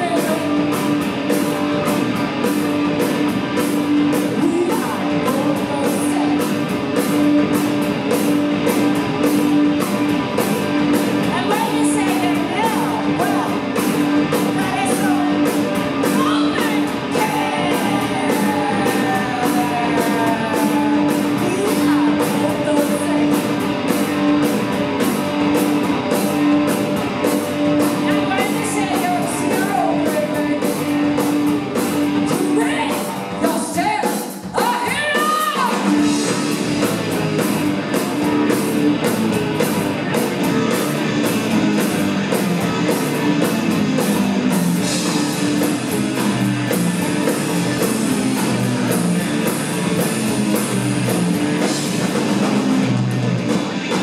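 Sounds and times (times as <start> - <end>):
person singing: 0.0 - 0.9, 4.2 - 6.7, 11.2 - 23.6, 28.0 - 31.3, 32.2 - 36.6
live rock band playing: 0.0 - 54.0.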